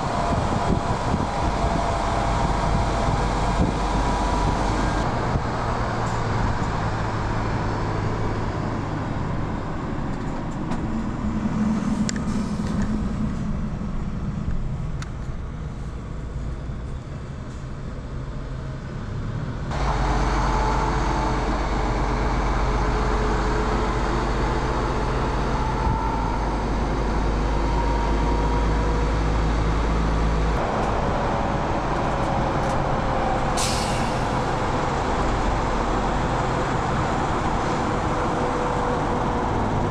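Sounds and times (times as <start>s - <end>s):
truck diesel engine running: 0.0s - 39.9s
air brake hiss: 12.2s - 12.8s, 33.6s - 34.5s.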